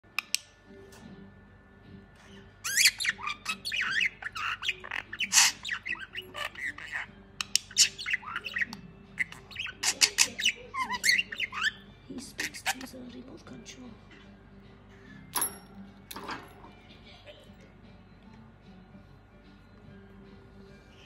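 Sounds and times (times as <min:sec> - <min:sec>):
budgerigar chattering: 0:02.6 - 0:13.0.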